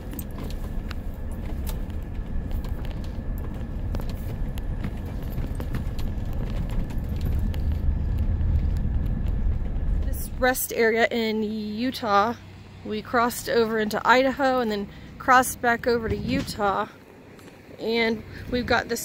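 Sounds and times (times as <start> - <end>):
small clicks and rattles: 0.0 - 10.4
engine and tyres rumbling: 0.0 - 19.0.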